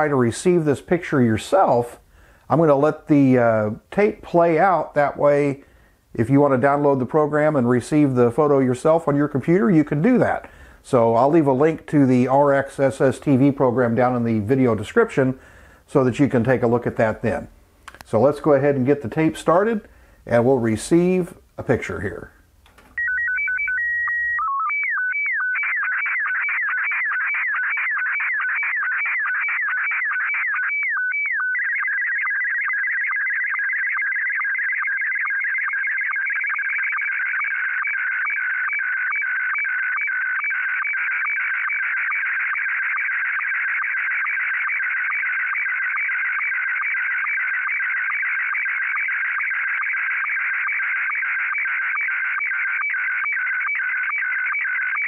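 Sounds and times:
high-pitched warbling signal tones: 23.0s - 55.0s.

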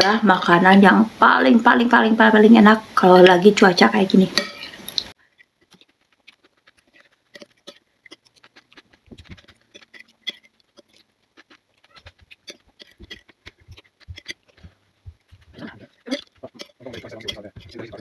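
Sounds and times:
cutlery tapping ceramic bowl: 4.4s - 4.8s, 16.1s - 17.9s
chewing: 4.4s - 18.0s
slurping soup and noodles: 4.6s - 18.0s.

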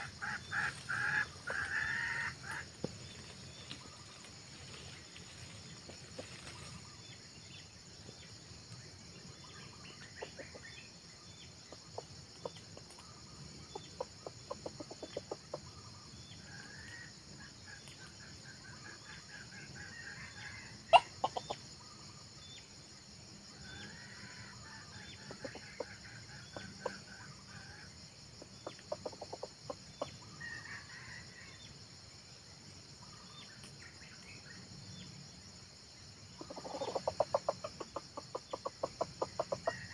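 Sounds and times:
junglefowl clucking: 0.0s - 2.8s, 13.8s - 15.9s, 18.6s - 21.6s, 23.9s - 31.0s, 36.4s - 39.9s.

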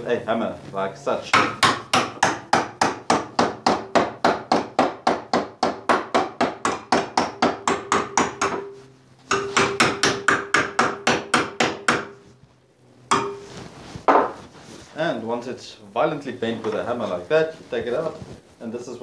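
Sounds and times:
hammer striking steel bar: 1.4s - 12.2s, 13.1s - 13.6s.

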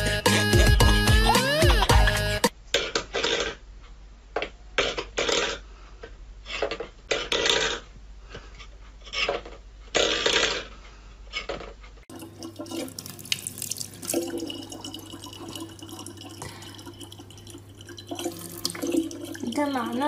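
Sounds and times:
low steady hum: 12.1s - 20.0s
water running into plastic bottle: 12.1s - 20.0s.

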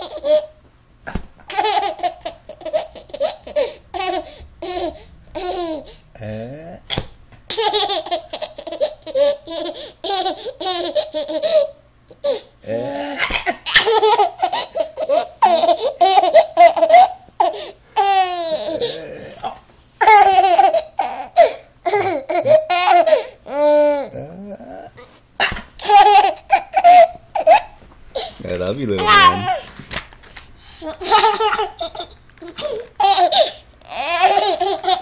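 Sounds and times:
toddler laughing and squealing: 29.0s - 29.7s.

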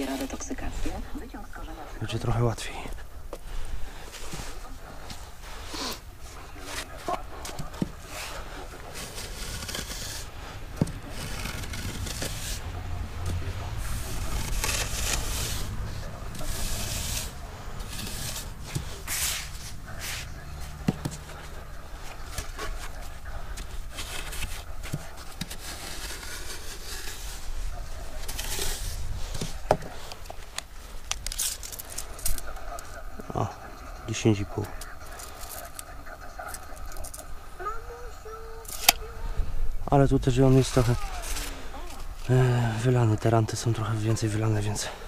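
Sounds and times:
wooden board scraping damp sand: 7.7s - 12.7s, 13.3s - 20.3s, 23.6s - 30.1s
gloved hands rubbing sand: 13.8s - 20.4s, 22.7s - 30.1s.

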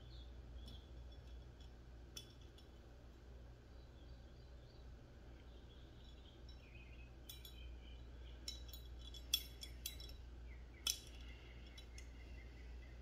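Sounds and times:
metallic clicks of gun parts: 8.4s - 10.2s, 10.8s - 12.2s.

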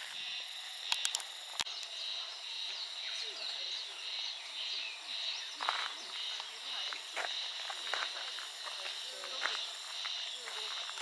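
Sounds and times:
high-pitched insect drone: 0.0s - 11.0s
sharp clicks: 0.9s - 2.0s.

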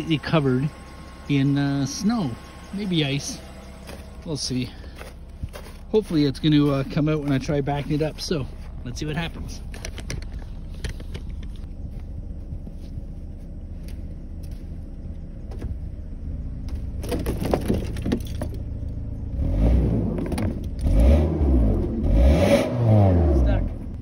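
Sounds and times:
car engine idling and revving: 0.0s - 24.0s.

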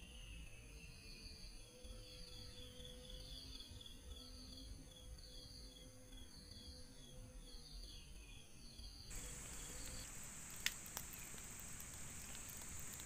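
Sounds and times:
insects chirping: 1.4s - 13.0s
sharp clicks: 9.1s - 13.0s.

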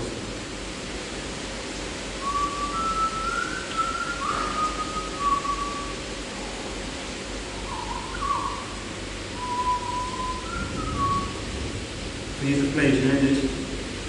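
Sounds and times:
person whistling a slow tune: 2.2s - 6.0s, 9.4s - 11.4s.

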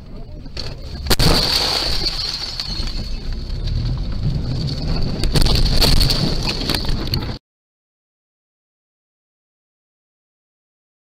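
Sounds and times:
car crash bang: 0.6s - 7.4s
loud rattling: 0.6s - 7.4s.

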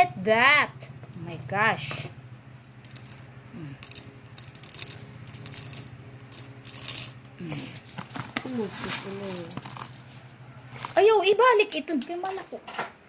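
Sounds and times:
coffee beans rattling in metal grinder: 2.8s - 10.0s, 10.7s - 12.6s.

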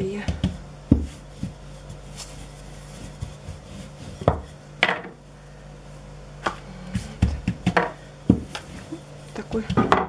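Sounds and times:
rolling pin rubbing dough: 0.0s - 4.7s, 6.4s - 10.0s
rolling pin knocking counter: 6.9s - 8.6s, 9.5s - 10.0s.

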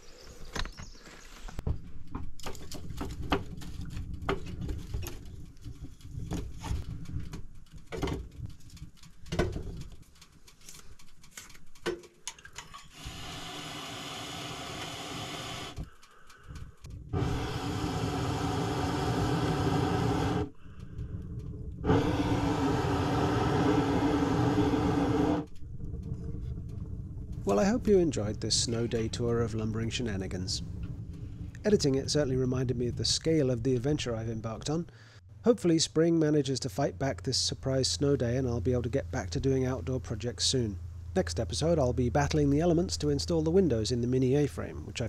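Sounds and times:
firewood knocking and clattering: 1.6s - 12.9s
steady rushing noise: 17.0s - 34.1s.

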